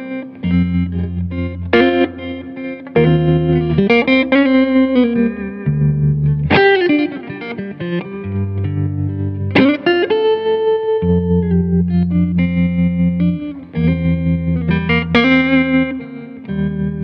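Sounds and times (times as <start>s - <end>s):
guitar music: 0.0s - 17.0s
bass notes: 0.5s - 7.2s.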